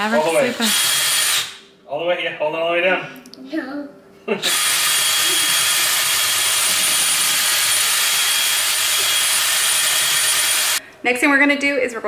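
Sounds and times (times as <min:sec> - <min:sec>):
cordless drill whirring: 0:00.2 - 0:01.6, 0:04.4 - 0:10.8.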